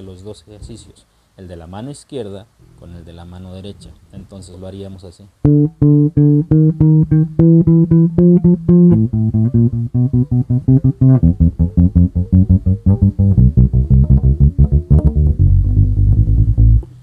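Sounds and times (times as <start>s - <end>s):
electric bass plucked notes: 5.4s - 17.0s.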